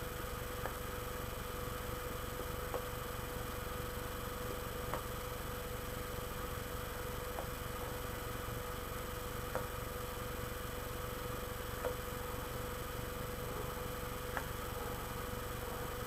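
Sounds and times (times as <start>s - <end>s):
faint steady whine: 0.0s - 16.0s
low electrical hum: 0.0s - 16.0s.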